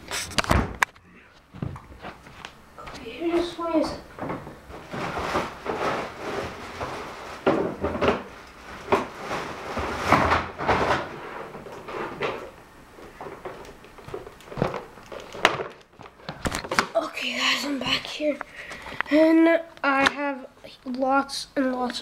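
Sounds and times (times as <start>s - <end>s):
handling knocks and rustling: 0.0s - 17.2s.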